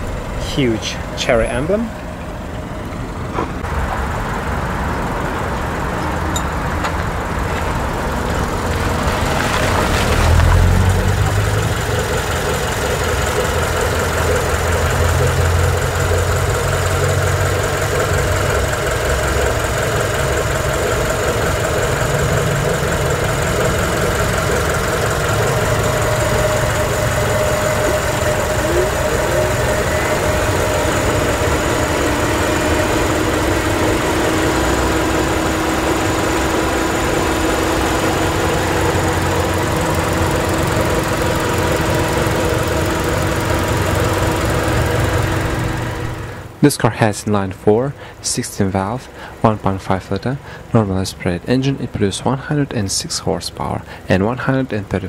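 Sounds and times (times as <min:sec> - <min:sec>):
car engine idling: 0:00.0 - 0:55.0.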